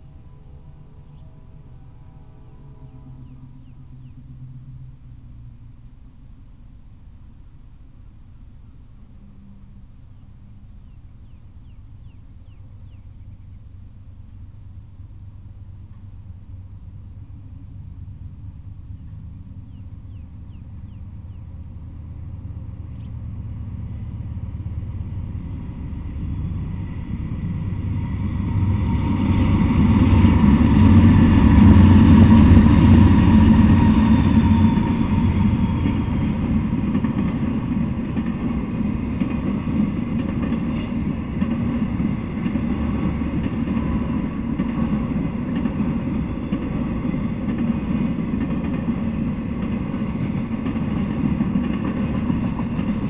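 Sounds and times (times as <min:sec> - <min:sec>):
diesel locomotive engine rumble: 0:00.0 - 0:53.0
freight cars rolling on rails: 0:14.2 - 0:53.0.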